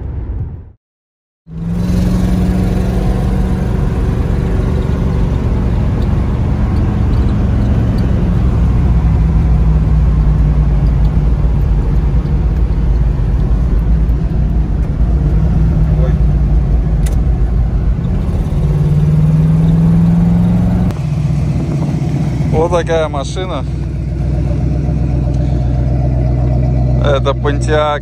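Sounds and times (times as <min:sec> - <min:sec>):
car engine rumbling: 0:00.0 - 0:00.8, 0:01.5 - 0:28.0.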